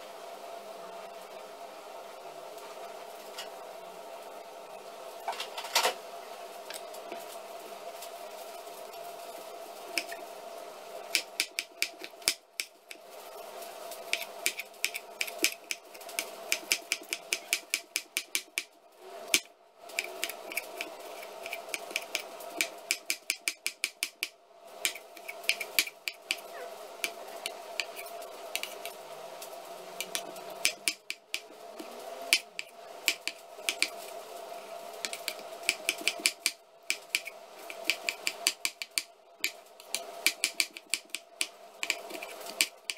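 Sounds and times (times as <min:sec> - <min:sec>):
knife chopping on wooden board: 0:24.8 - 0:26.4, 0:35.1 - 0:39.6.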